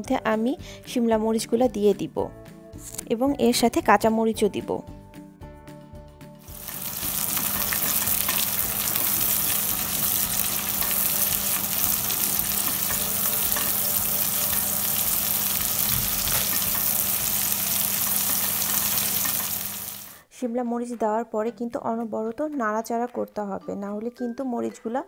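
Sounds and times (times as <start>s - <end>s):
vegetables sizzling in oil: 6.4s - 20.2s.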